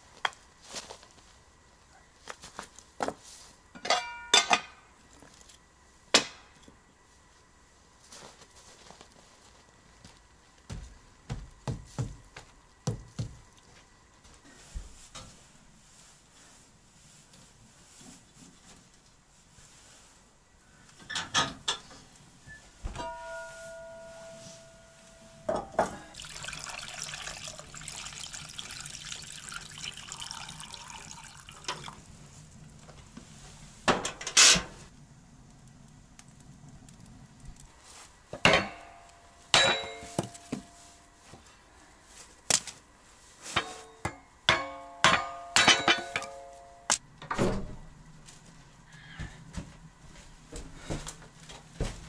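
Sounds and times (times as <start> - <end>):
metal pots clanking: 3.8 - 4.7, 39.6 - 40.4, 43.6 - 46.7
sharp ringing metallic knocks: 23.0 - 25.7, 38.4 - 40.7, 44.0 - 47.0
liquid pouring into a pot: 26.1 - 32.1.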